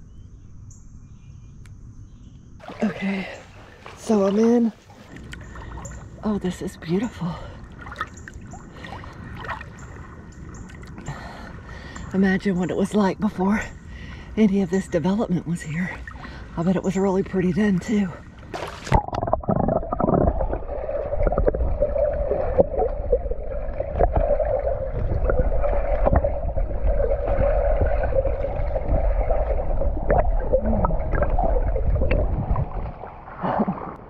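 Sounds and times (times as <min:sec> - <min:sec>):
muffled underwater rumble and hum: 0:00.0 - 0:34.0
water splash: 0:02.6 - 0:06.0, 0:18.4 - 0:34.0
bubbling clicks: 0:18.6 - 0:33.0.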